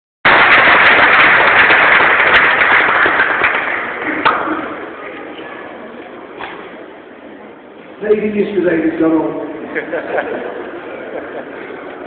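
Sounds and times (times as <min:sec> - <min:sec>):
audience applauding: 0:00.2 - 0:04.4.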